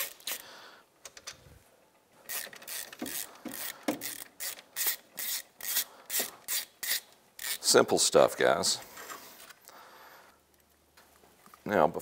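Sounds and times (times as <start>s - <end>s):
hand ratchet clicking: 2.2s - 7.7s.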